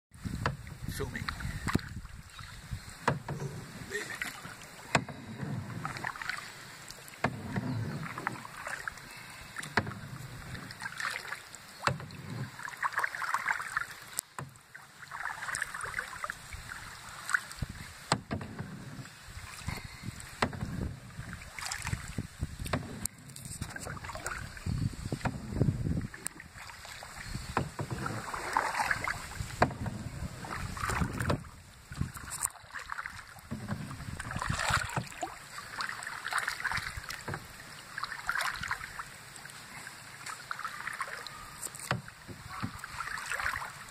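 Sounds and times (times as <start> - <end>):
paddles splashing in water: 0.1 - 43.9.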